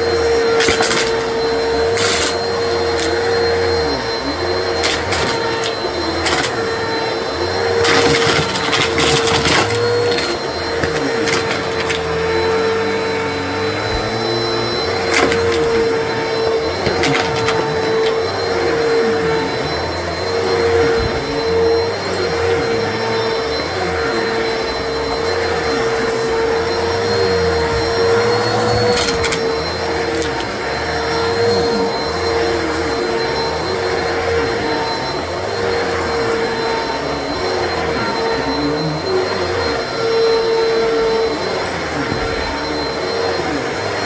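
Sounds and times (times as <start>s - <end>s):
vacuum cleaner motor whine: 0.0s - 44.0s
vacuum brushroll crunching: 0.3s - 18.5s, 25.5s - 35.0s.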